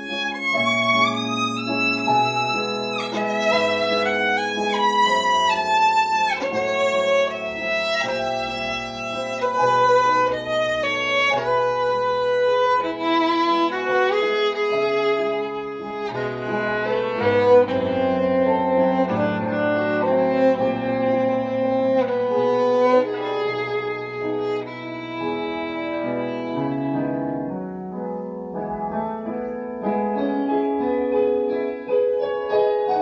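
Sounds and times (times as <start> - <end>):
recorded backing accompaniment: 0.0 - 33.0
violin melody: 0.0 - 33.0.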